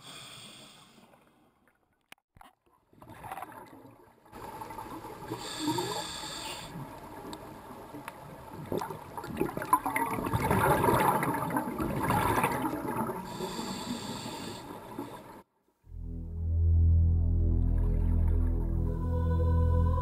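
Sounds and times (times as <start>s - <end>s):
regulator inhalation hiss: 0.0s - 1.0s, 5.4s - 6.8s, 13.3s - 15.2s
underwater exhalation bubbles: 8.7s - 13.5s.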